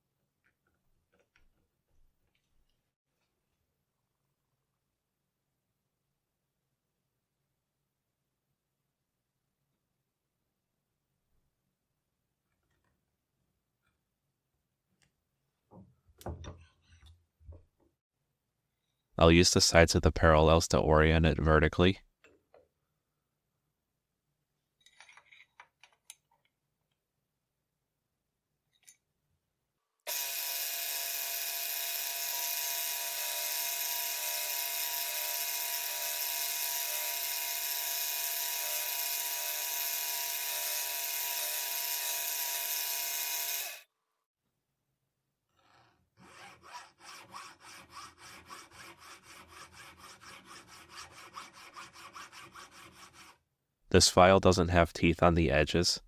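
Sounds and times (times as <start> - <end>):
milling machine cutting metal: 30.1 - 43.8
hand file rasping on metal: 45.7 - 53.4.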